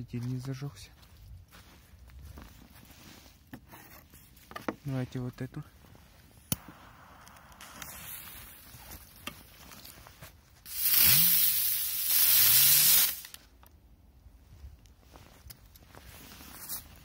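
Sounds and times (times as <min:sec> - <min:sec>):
firework hissing: 0:06.5 - 0:08.8, 0:10.6 - 0:13.4.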